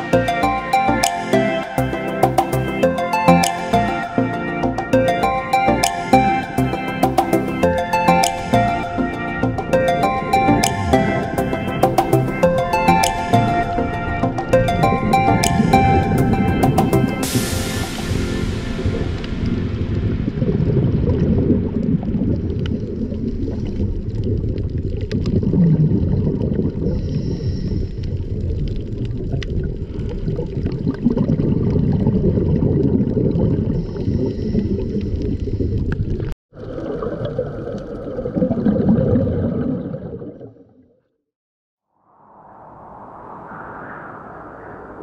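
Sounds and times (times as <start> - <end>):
scattered clicks: 8.2 - 8.6
muffled underwater rumble: 18.9 - 36.3
diver's exhaled bubbles: 20.6 - 27.4, 28.2 - 40.8.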